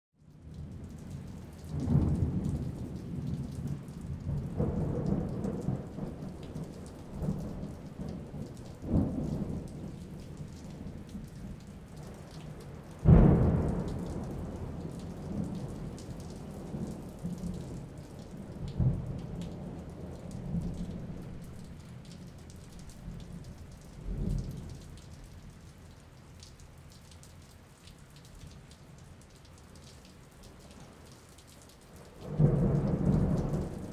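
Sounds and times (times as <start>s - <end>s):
steady rain falling: 0.2s - 33.9s
low rolls of thunder: 0.4s - 25.0s, 32.2s - 33.9s
sharp thunderclap: 13.1s - 16.0s.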